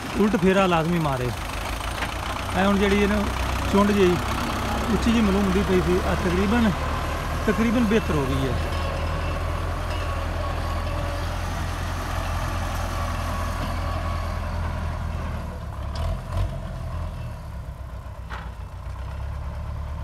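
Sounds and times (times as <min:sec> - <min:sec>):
tractor diesel engine running: 0:00.0 - 0:20.0.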